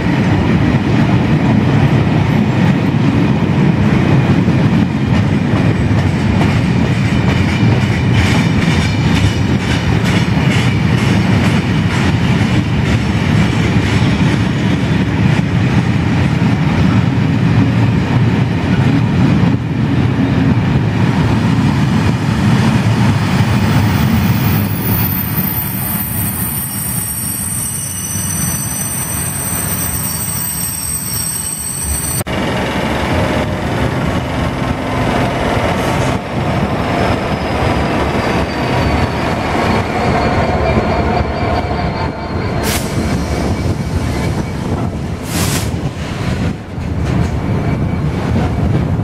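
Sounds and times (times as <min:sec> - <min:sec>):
freight train rumbling past: 0:00.0 - 0:49.0
metallic wheel squeal: 0:23.9 - 0:32.2, 0:37.0 - 0:44.7.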